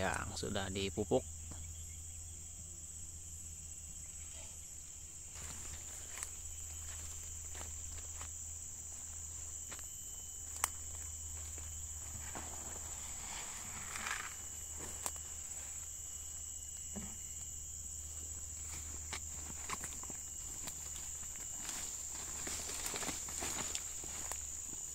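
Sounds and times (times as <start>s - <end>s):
high-pitched insect drone: 0.0s - 24.9s
footsteps through dry grass: 5.3s - 16.8s, 17.8s - 24.9s
twigs snapping: 10.5s - 11.0s.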